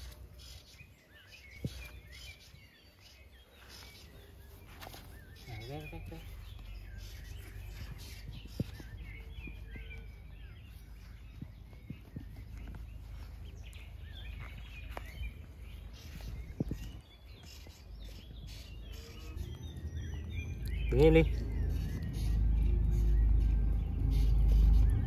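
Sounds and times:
small birds chirping: 0:00.0 - 0:25.0
low outdoor rumble: 0:17.9 - 0:25.0.

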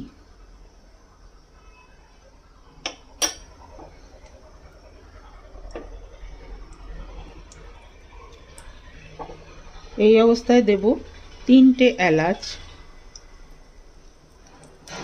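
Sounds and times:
utensil clinking against pan: 0:02.9 - 0:03.5.

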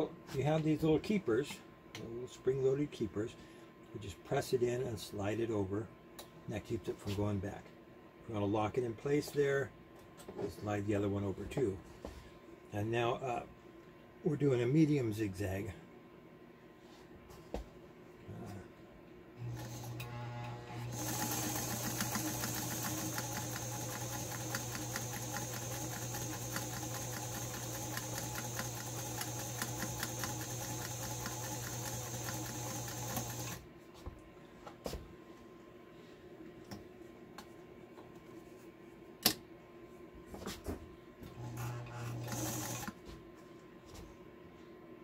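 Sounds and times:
sewing machine running: 0:19.4 - 0:33.6, 0:41.4 - 0:42.9.

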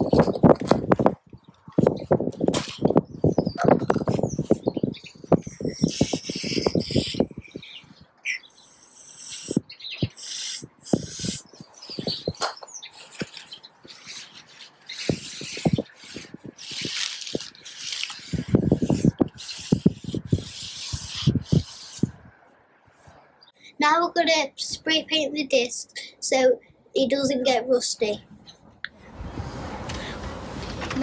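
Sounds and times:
paper towel wiping metal: 0:13.0 - 0:22.1.

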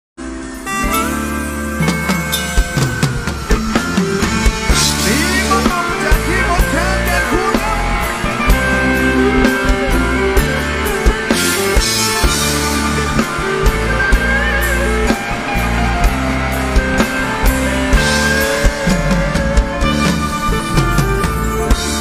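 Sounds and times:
live band playing: 0:00.2 - 0:22.0
man singing into a microphone: 0:05.0 - 0:10.2.

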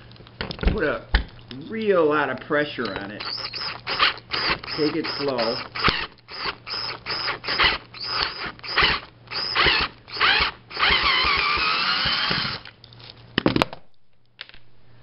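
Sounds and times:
power drill motor whining: 0:03.2 - 0:12.7.

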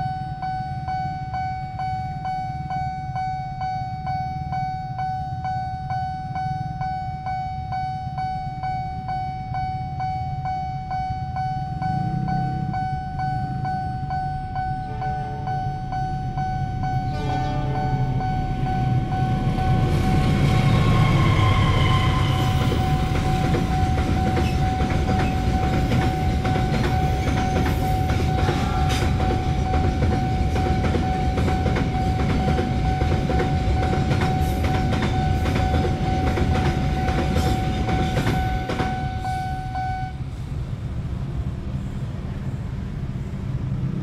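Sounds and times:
level crossing warning alarm: 0:00.0 - 0:40.2
train rumbling and clattering on rails: 0:04.5 - 0:44.0
diesel locomotive horn: 0:16.9 - 0:23.4.

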